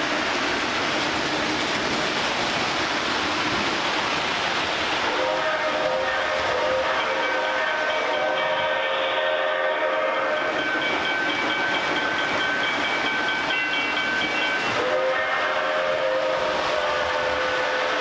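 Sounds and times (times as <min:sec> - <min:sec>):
model train wheels and motors rumbling: 0:00.0 - 0:18.0
model train whine: 0:04.9 - 0:18.0.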